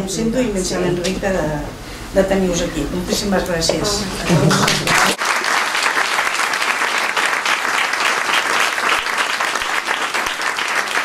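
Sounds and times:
crowd applauding: 4.3 - 11.0.

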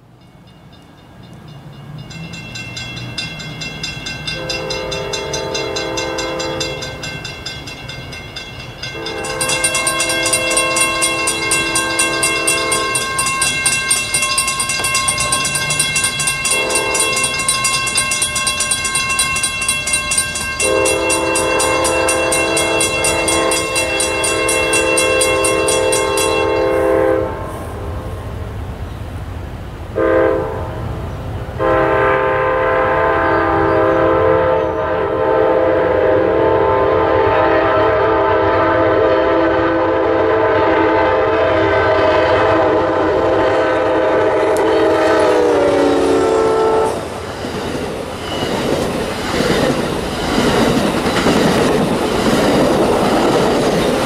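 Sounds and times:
crossing warning bells ringing: 0.0 - 27.8, 31.4 - 54.0
train horn: 4.3 - 7.2, 8.8 - 28.0, 30.0 - 30.9, 31.6 - 47.2.

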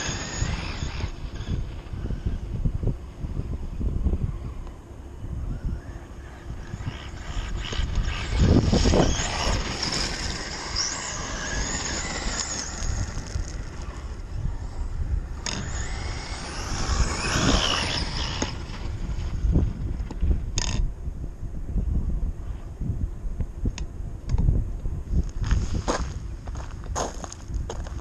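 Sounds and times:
electric motor whine: 0.0 - 20.8
tyres crunching gravel: 25.4 - 28.0.

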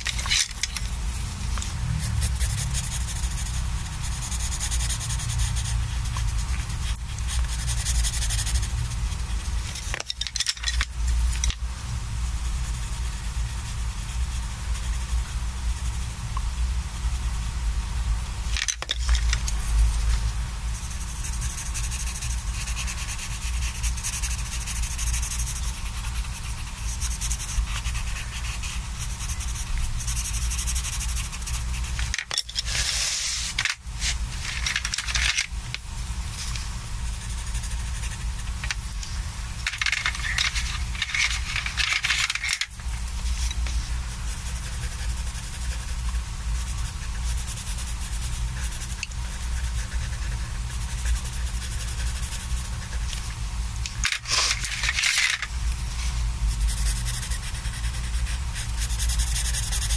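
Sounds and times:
pencil scratching on paper: 1.9 - 11.5, 12.2 - 16.2, 18.8 - 35.4, 36.2 - 38.6, 39.6 - 53.4, 54.0 - 59.9
wooden pencils rattling together: 34.4 - 35.5, 39.6 - 42.7, 54.0 - 55.5.

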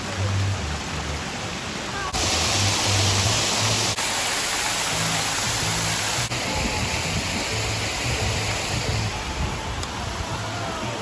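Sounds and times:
waterfall splashing into pond: 0.0 - 11.0
background music with bass line: 4.8 - 11.0.

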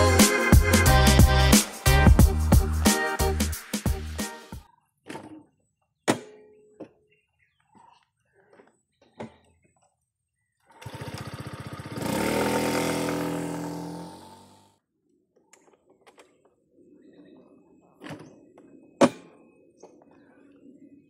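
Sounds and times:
scooter engine cranking and running: 10.6 - 14.7.

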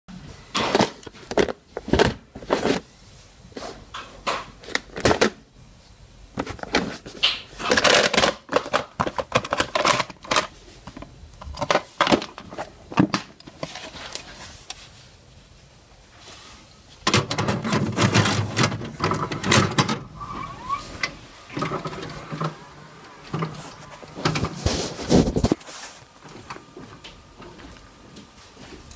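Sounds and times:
plastic cassette case rattling: 6.4 - 13.8
tape player mechanical whirr: 17.2 - 25.6.

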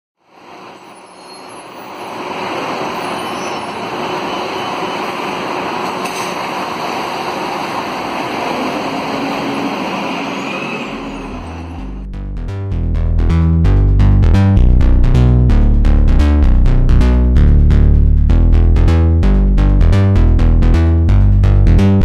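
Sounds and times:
bus engine pulling away: 0.2 - 12.1
street traffic noise: 0.2 - 12.1
low music bass: 11.8 - 22.0.

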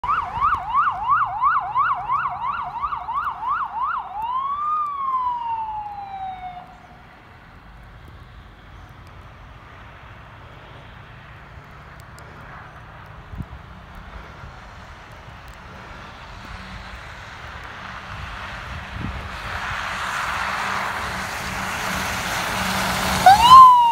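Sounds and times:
emergency vehicle siren yelping: 0.0 - 7.2, 23.1 - 23.9
road and traffic noise: 0.0 - 23.9.

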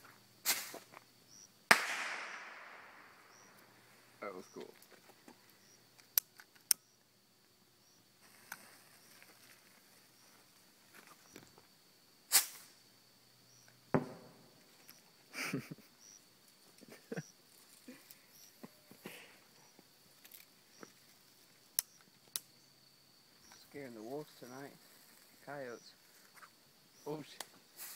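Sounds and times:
coyotes yipping and howling: 1.2 - 1.6, 3.2 - 4.6, 5.2 - 6.0, 15.9 - 19.8
fireworks bangs and crackling pops: 1.7 - 3.6, 13.9 - 14.6.

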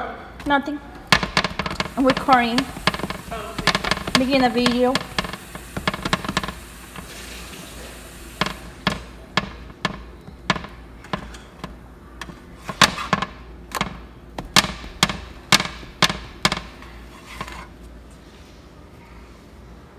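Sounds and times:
faint steady hiss: 0.0 - 11.2.

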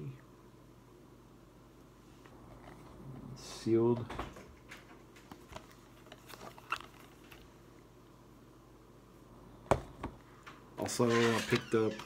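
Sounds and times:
plastic case clicking and crinkling: 5.2 - 7.5.

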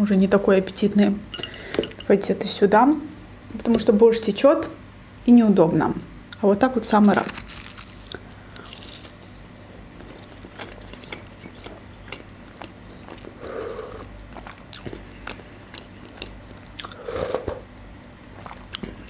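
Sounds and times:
chewing crunchy pastry: 7.2 - 19.0.

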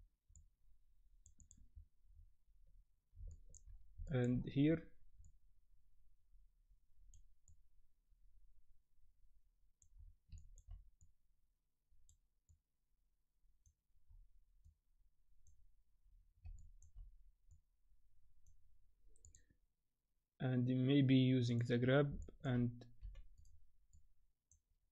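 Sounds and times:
computer mouse clicks: 1.2 - 1.6, 9.8 - 11.1, 19.2 - 19.5.

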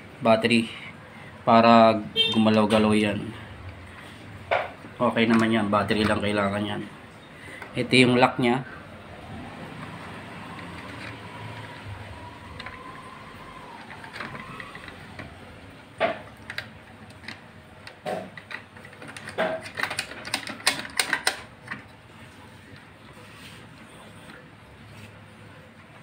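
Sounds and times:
clock parts clicking and knocking: 16.0 - 21.8.

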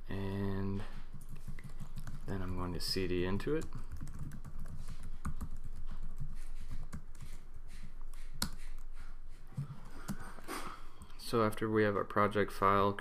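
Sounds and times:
computer keyboard typing: 1.1 - 7.4.

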